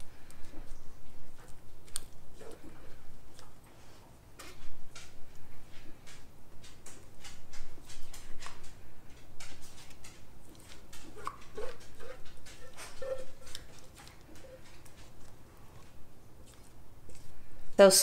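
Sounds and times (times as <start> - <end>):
spatula scraping metal bowl: 11.1 - 14.8.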